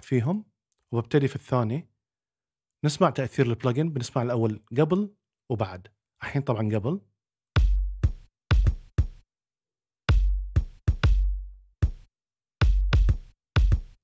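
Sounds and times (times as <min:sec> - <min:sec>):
deep kick drum hits: 0:07.6 - 0:09.0.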